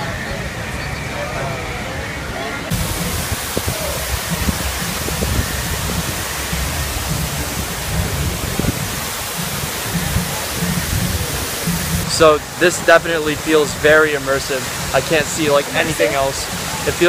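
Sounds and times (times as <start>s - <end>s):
waterfall rushing: 2.6s - 17.0s
low rumble: 2.7s - 12.1s.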